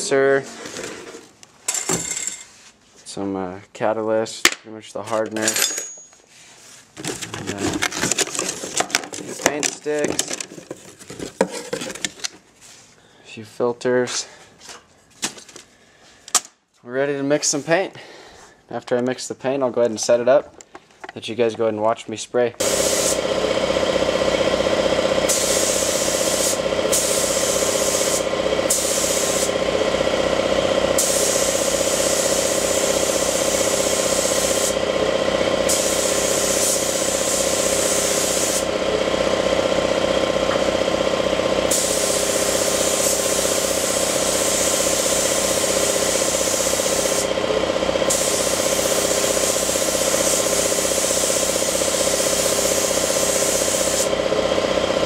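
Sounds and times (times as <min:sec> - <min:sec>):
compressed air hissing: 0:22.6 - 0:23.3, 0:25.2 - 0:29.6, 0:31.0 - 0:34.8, 0:35.6 - 0:38.7, 0:41.7 - 0:47.4, 0:48.0 - 0:54.1
air compressor running: 0:22.6 - 0:55.0.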